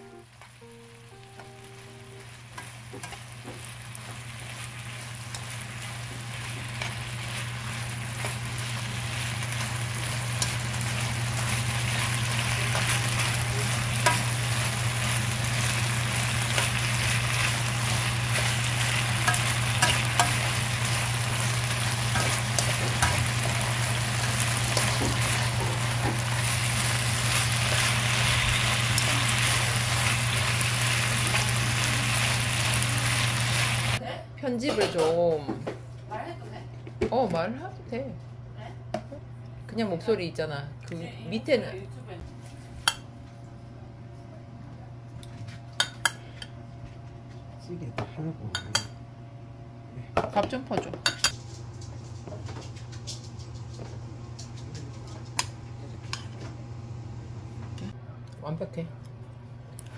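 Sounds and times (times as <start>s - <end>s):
low steady hum: 0.0s - 59.9s
meat sizzling in a pan: 1.7s - 34.0s
metal tongs clicking on pan: 19.2s - 20.6s.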